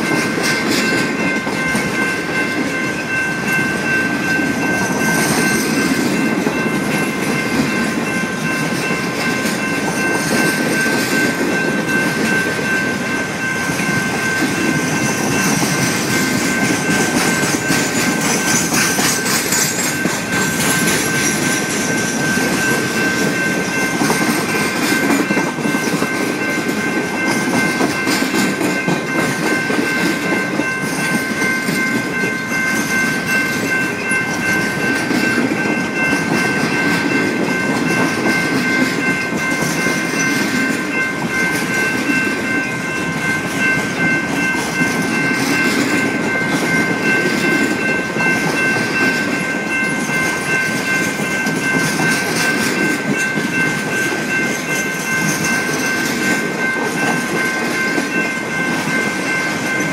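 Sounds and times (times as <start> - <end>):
steady high tones: 0.0 - 59.9
train rumbling past: 0.0 - 59.9
wheels clicking over rail joints: 13.7 - 32.4.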